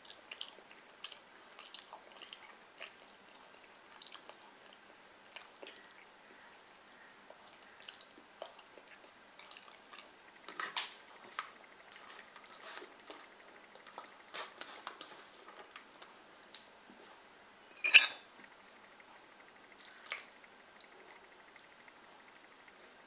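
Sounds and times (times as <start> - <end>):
dishes clinking: 17.7 - 18.3.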